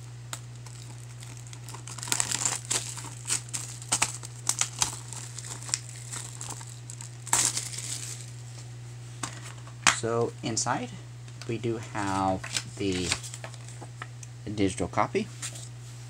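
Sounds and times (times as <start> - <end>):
shrink wrap tearing and crinkling: 0.0 - 8.7, 12.0 - 14.1.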